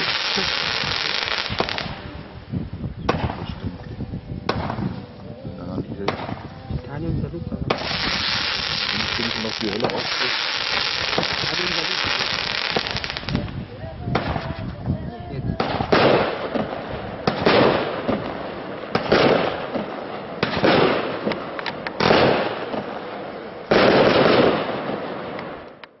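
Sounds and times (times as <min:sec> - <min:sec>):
firework bangs with crackle: 0:00.0 - 0:02.0, 0:03.1 - 0:03.5, 0:04.5 - 0:05.0, 0:06.0 - 0:06.5, 0:07.7 - 0:14.5, 0:15.6 - 0:23.1, 0:23.7 - 0:25.9.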